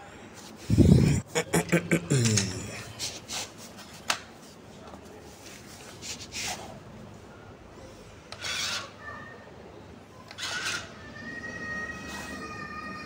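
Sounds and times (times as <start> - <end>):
toy car wheels spinning on floor: 10.3 - 10.9.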